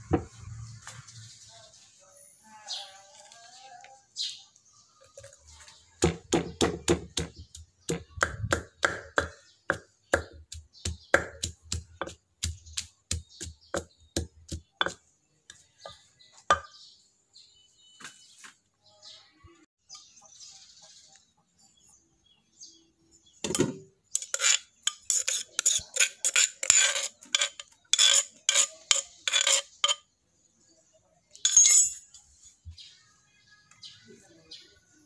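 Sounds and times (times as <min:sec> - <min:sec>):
pestle pounding in a clay mortar: 0:06.0 - 0:15.0.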